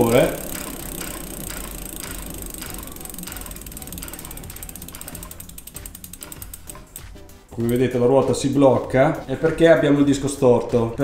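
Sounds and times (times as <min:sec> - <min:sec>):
disc brake rotor rubbing: 0:00.0 - 0:07.4
freehub clicking: 0:00.0 - 0:08.5.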